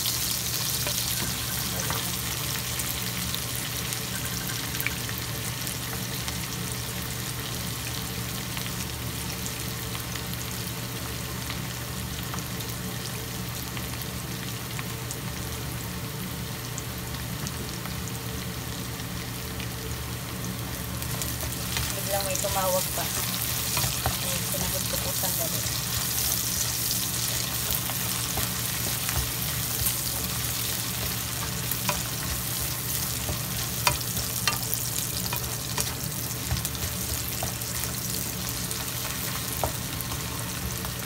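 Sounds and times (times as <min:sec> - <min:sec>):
food sizzling in hot oil: 0:00.0 - 0:41.0
spatula stirring in wok: 0:21.1 - 0:41.0.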